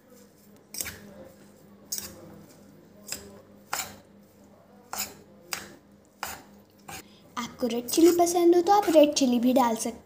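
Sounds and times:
spoon scraping steel bowl: 0.1 - 4.1, 4.9 - 5.3, 6.2 - 7.0.

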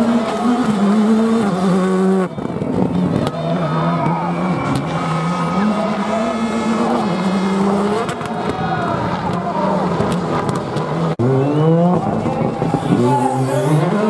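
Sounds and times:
rally car engine high revs: 0.0 - 8.4, 9.0 - 14.0
rally car accelerating: 0.0 - 14.0.

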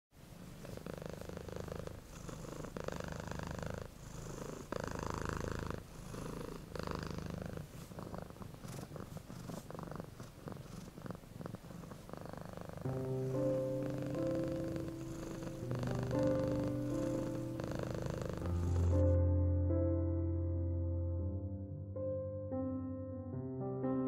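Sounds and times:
cat purring: 0.2 - 19.2.

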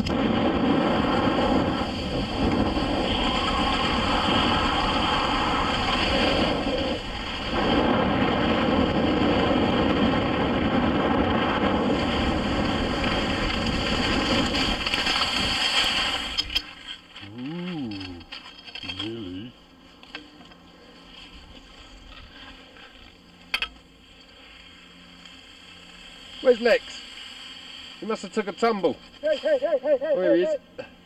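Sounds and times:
wind buffeting microphone: 0.0 - 15.6
skis hissing over snow: 0.3 - 9.4, 11.5 - 17.6, 24.3 - 30.4.

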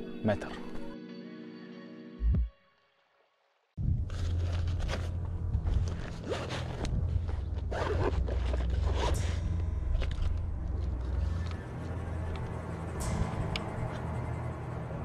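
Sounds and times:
steady low rumble: 3.8 - 15.0
zip rasping: 4.1 - 11.8.

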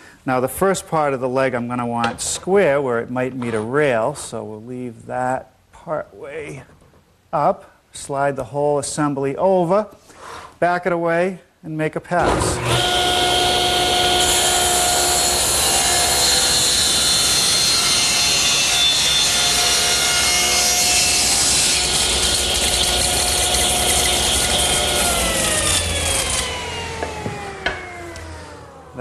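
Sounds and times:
table saw ripping wood: 12.2 - 28.8
saw blade spinning down: 12.2 - 28.9.

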